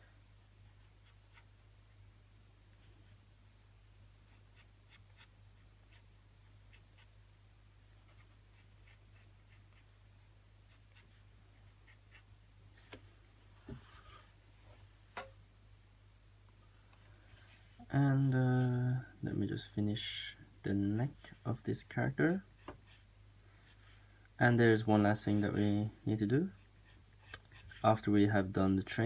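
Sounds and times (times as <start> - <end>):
low steady hum: 0.0 - 29.0
pencil scratching on paper: 0.4 - 1.5, 4.2 - 5.3, 8.1 - 9.9, 10.7 - 12.3, 26.5 - 27.8.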